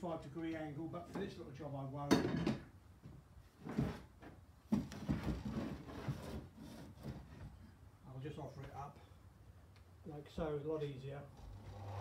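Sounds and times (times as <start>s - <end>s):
timber scraping and knocking on bench: 3.6s - 7.6s.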